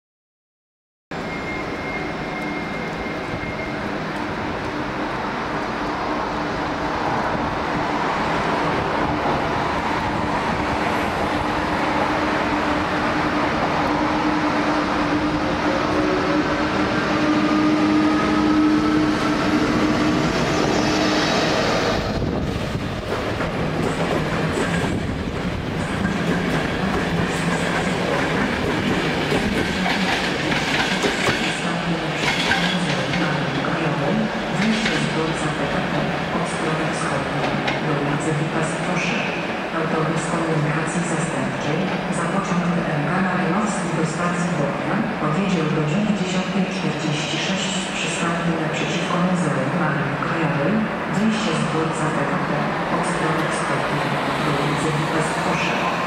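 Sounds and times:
electric locomotive hum and whine: 0:01.2 - 0:56.0
train wheels clattering on rails: 0:22.6 - 0:33.7.

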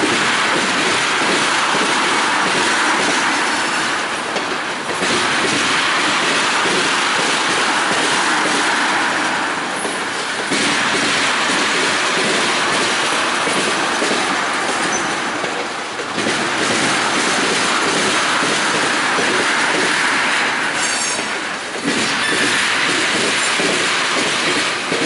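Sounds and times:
train wheels rolling on rails: 0:00.0 - 0:25.0
high-pitched wheel squeal: 0:20.8 - 0:21.4.

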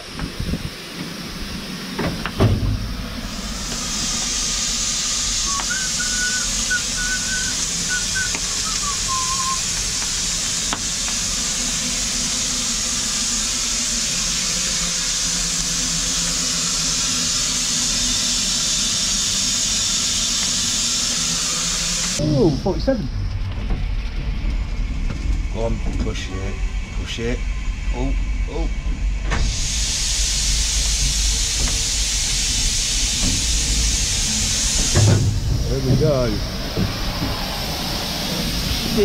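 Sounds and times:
steam hissing: 0:00.0 - 0:39.0.

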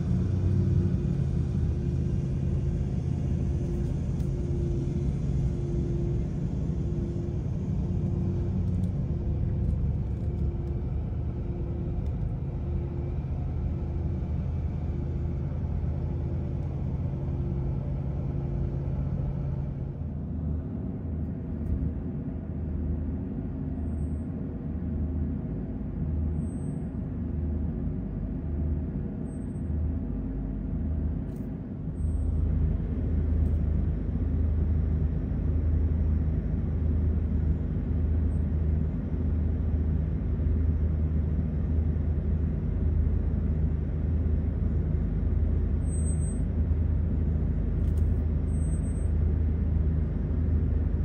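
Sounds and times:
truck engine rumble from cab: 0:00.0 - 0:51.0.

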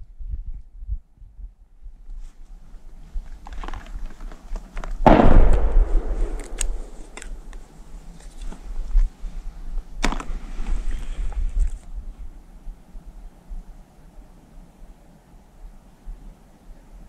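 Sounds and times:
gunshot with echo: 0:05.0 - 0:07.4.

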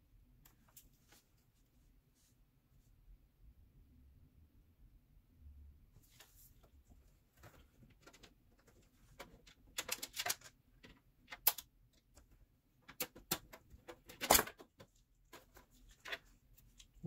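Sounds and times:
hands handling cables and plastic: 0:06.0 - 0:17.0.

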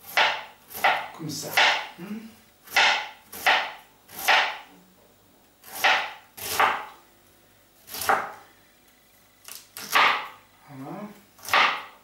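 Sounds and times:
knife slicing cabbage on board: 0:00.0 - 0:01.8, 0:02.6 - 0:04.6, 0:05.6 - 0:06.9, 0:07.9 - 0:08.4, 0:11.4 - 0:12.0.

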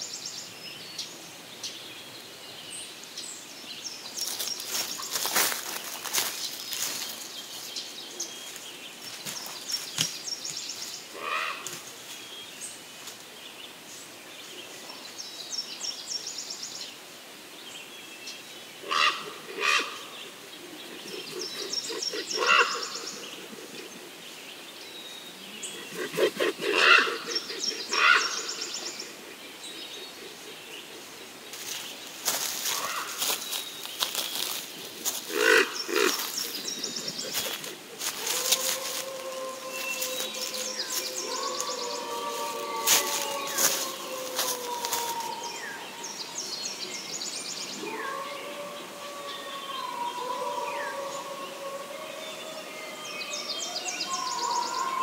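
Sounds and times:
lower-pitched bird calls: 0:18.9 - 0:24.2, 0:25.6 - 0:31.0, 0:31.6 - 0:46.4.

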